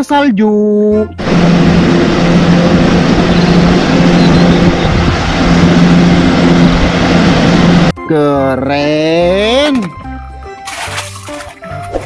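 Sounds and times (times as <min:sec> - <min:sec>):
diesel engine droning: 0:01.2 - 0:07.9.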